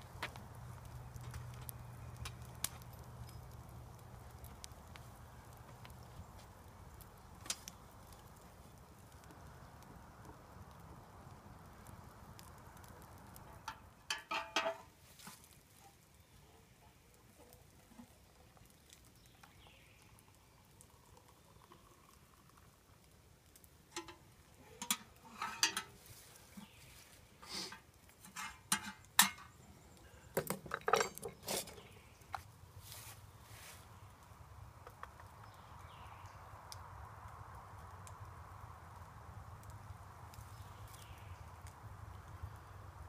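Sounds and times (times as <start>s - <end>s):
camp cookware clinking: 13.4s - 15.4s, 23.9s - 26.8s, 27.4s - 29.6s, 30.3s - 32.0s.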